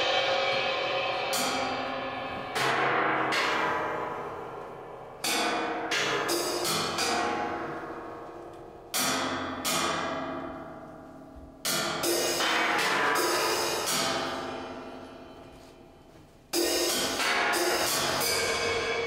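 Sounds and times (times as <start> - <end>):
metal percussion strikes ringing: 0.0 - 8.2, 11.7 - 15.5, 16.5 - 19.0.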